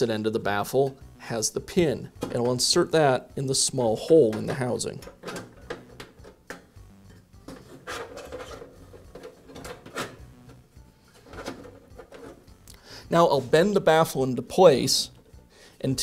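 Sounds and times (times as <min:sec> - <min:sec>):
metal scraping on metal: 0:07.5 - 0:10.3, 0:11.1 - 0:12.5.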